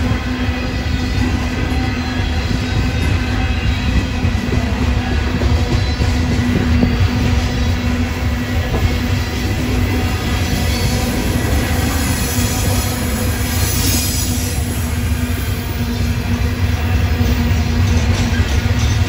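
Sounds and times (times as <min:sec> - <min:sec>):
train wheels rumbling on rails: 0:00.0 - 0:19.0
high wheel squeal: 0:08.9 - 0:19.0.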